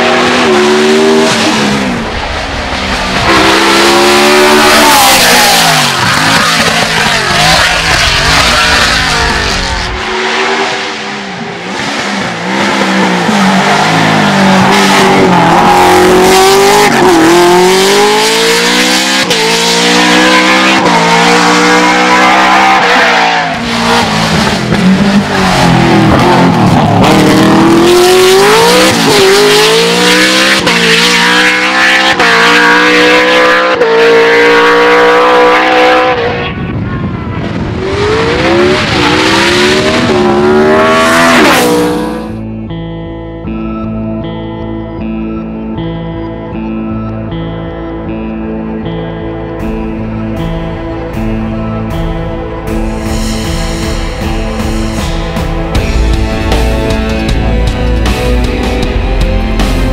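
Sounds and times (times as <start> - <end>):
racing car engine revving: 0.0 - 36.4, 37.4 - 42.4.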